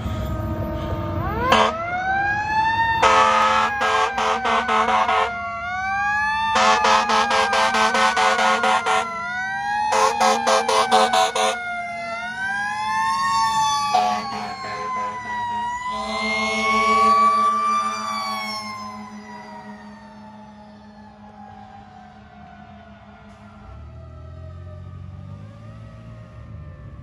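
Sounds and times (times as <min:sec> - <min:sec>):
fire truck sirens wailing: 0:00.0 - 0:27.0
air horn blasts: 0:01.4 - 0:01.9, 0:03.0 - 0:05.4, 0:06.6 - 0:09.3, 0:09.9 - 0:11.7, 0:13.9 - 0:19.9.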